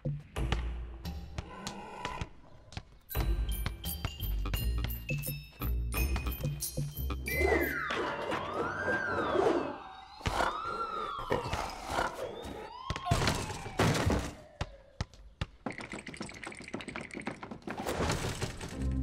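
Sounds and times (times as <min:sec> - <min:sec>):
gliding whistle tone: 0:07.3 - 0:11.5.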